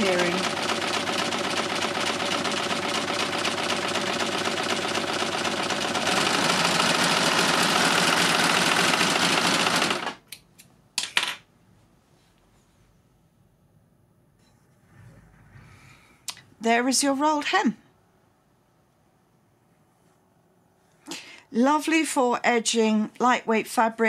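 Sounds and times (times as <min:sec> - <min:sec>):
overlocker machine running: 0:00.0 - 0:10.2.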